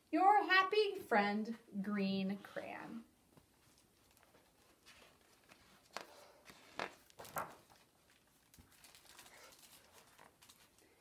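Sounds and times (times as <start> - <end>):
book pages turning: 3.5 - 11.0.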